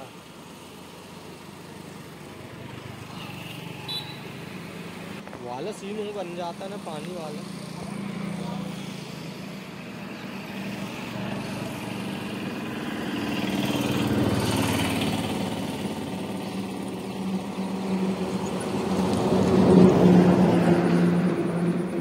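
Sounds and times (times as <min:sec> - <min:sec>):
small engine running: 0:05.9 - 0:22.0.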